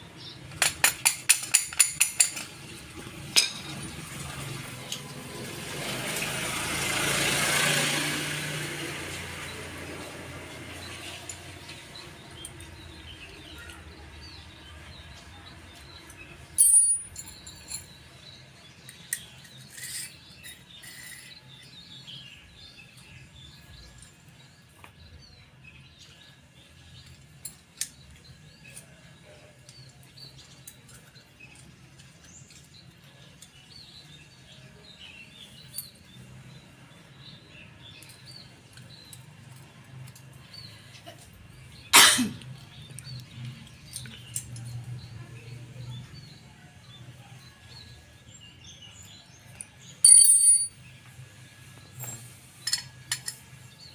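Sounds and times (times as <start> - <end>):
small steel parts clicking and clinking: 0.5 - 2.7, 16.6 - 18.0, 18.9 - 21.7, 49.5 - 50.9, 52.0 - 53.6.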